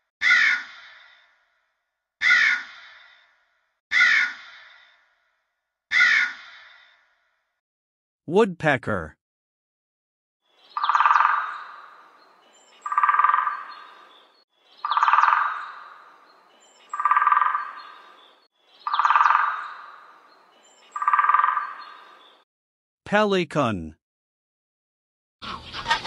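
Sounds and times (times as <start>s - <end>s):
woodpecker rolling calls: 10.6s - 16.2s, 16.8s - 22.4s.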